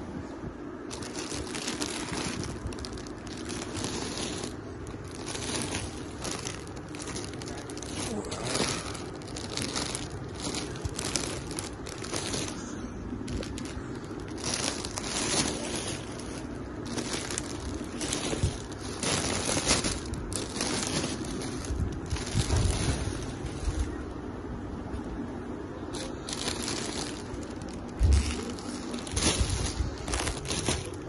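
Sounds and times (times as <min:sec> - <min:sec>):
plastic wrapping crinkling: 0:00.8 - 0:24.0, 0:25.9 - 0:31.0.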